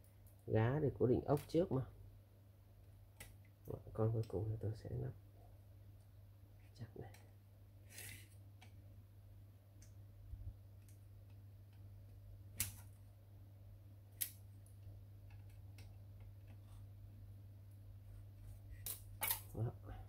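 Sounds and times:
low steady hum: 0.0 - 20.0
faint clicks of tools and parts: 18.8 - 19.5.

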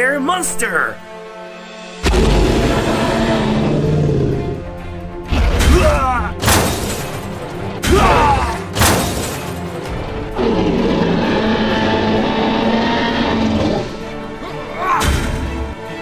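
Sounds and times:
music: 0.0 - 16.0
heavy booming hits: 2.0 - 3.0.

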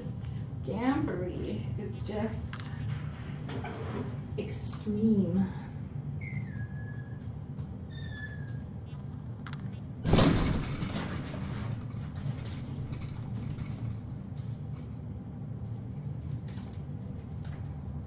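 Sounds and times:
steady low hum: 0.0 - 18.0
loud thump: 10.1 - 11.2.

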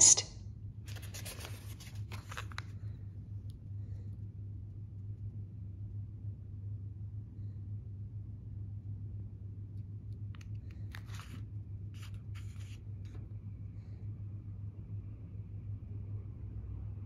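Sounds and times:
steady low hum: 0.0 - 17.0
paper pages rustling: 0.8 - 3.0, 10.4 - 13.3.

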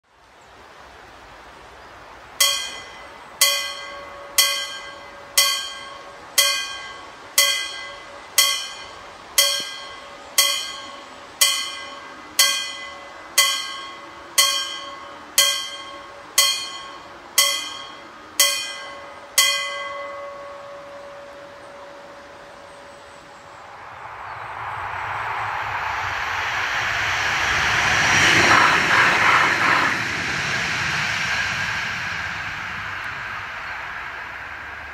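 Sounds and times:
level-crossing warning bell: 2.4 - 23.5.

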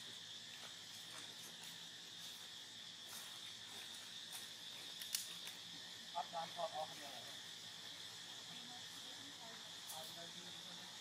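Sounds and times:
high-pitched insect drone: 0.0 - 11.0
faint ticks: 5.0 - 5.6.

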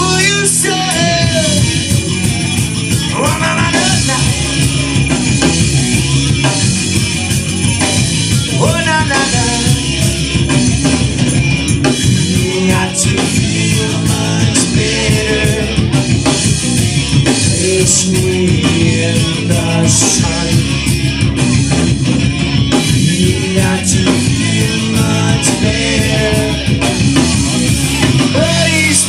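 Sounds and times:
man singing: 0.0 - 1.8, 2.9 - 5.1, 8.4 - 10.5, 11.8 - 16.5, 17.2 - 21.0, 22.7 - 29.0
rock band playing live: 0.0 - 29.0.

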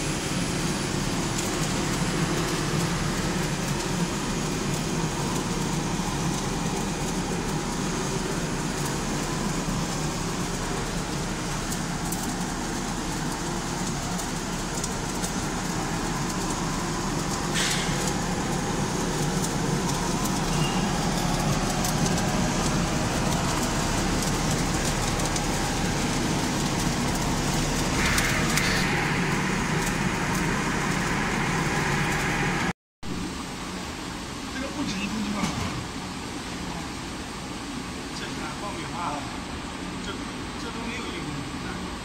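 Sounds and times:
popcorn popper motor drone: 0.0 - 42.0
higher hiss: 27.2 - 32.7.

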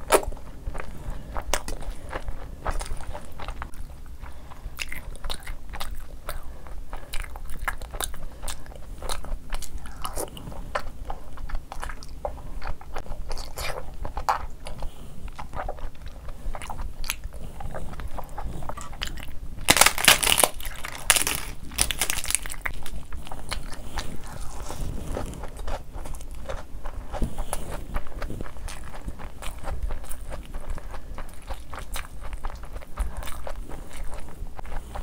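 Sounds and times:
wet chewing and smacking: 0.0 - 35.0
bread crackling: 15.8 - 35.0.

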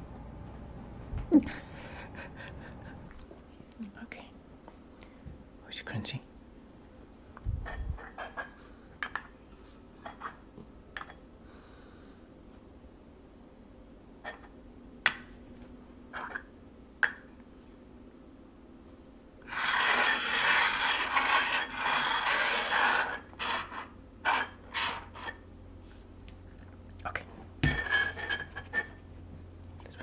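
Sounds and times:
metal tins scraping on tabletop: 19.5 - 25.4.

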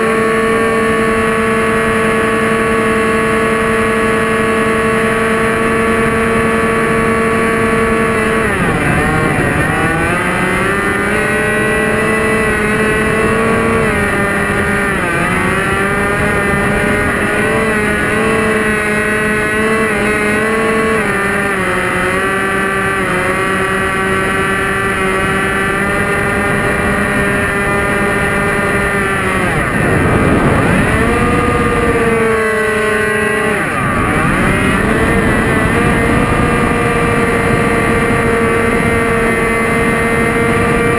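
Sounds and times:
model plane motor whine: 0.0 - 40.9
wind rushing over microphone: 0.5 - 40.9.

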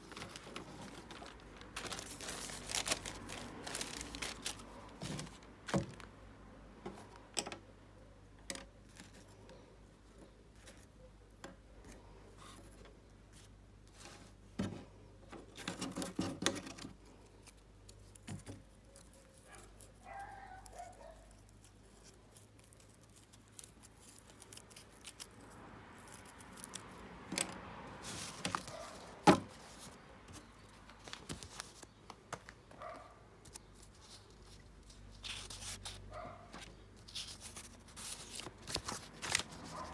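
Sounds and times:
paper rustling: 0.0 - 6.1, 27.4 - 39.9.

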